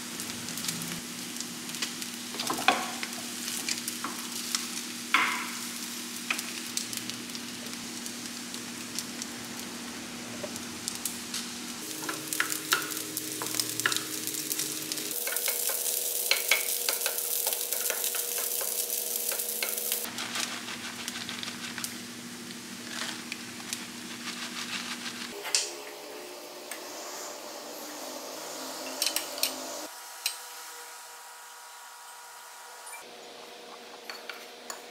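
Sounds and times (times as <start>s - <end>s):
rice sizzling in a frying pan: 0.0s - 32.6s
wooden spoon stirring and scraping: 15.2s - 22.1s, 22.8s - 25.4s.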